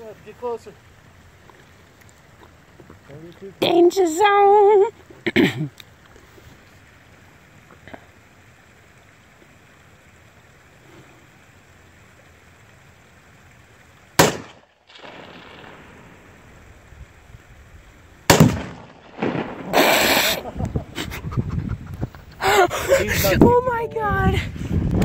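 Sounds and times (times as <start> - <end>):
light wind noise: 13.6 - 25.0
gunshot: 14.2 - 16.1, 18.3 - 20.4
exploding target blast: 14.2 - 16.6, 18.3 - 20.5.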